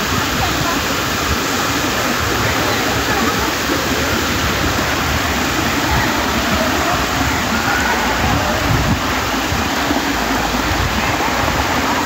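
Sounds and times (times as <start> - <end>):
water rushing down dam spillway: 0.0 - 12.0.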